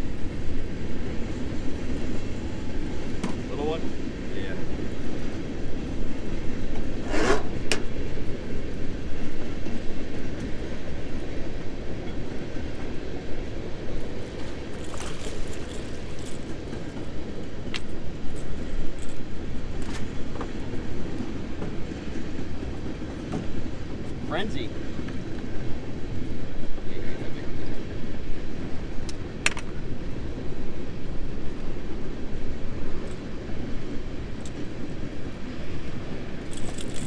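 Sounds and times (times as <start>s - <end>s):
fishing gear clicks and knocks: 14.7s - 16.7s, 36.5s - 37.0s.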